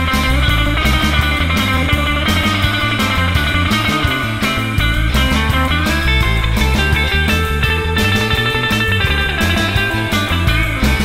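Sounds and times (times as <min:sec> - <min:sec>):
bass line: 0:00.0 - 0:11.0
guitar: 0:00.0 - 0:11.0
rock music: 0:00.0 - 0:11.0
steady drum beat: 0:00.0 - 0:11.0.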